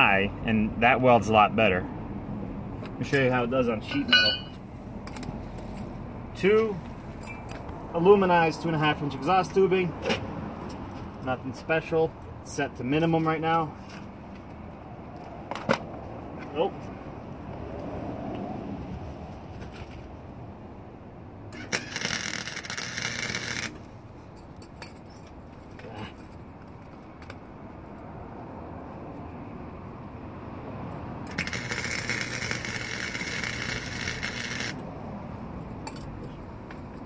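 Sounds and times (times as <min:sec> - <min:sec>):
welding arc crackling: 0:21.6 - 0:23.9, 0:31.3 - 0:34.8.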